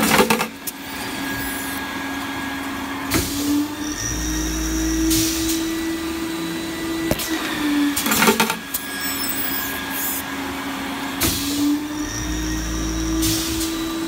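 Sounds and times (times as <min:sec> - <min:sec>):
motor hum: 0:00.0 - 0:14.0
air hiss bursts: 0:04.5 - 0:06.1, 0:08.7 - 0:10.3, 0:11.2 - 0:14.0.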